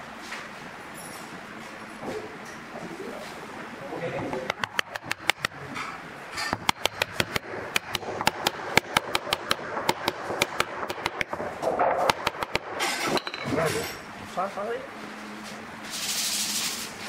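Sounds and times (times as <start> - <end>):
hammer tapping on wood: 6.6 - 11.3.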